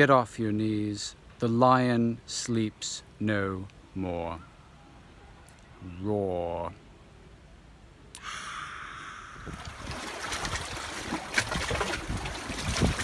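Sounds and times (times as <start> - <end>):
sea water splashing against rocks: 9.5 - 13.0.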